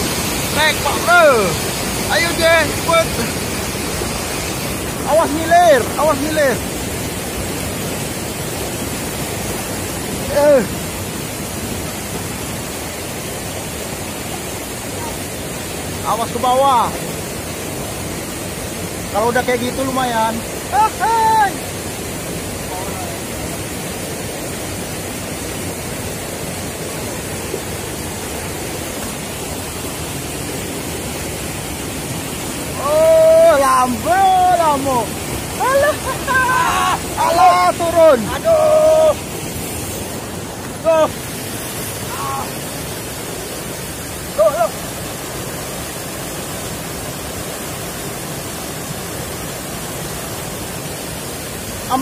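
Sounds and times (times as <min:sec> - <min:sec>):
river rushing: 0:00.0 - 0:52.0
short cry: 0:35.6 - 0:37.1, 0:44.3 - 0:44.8.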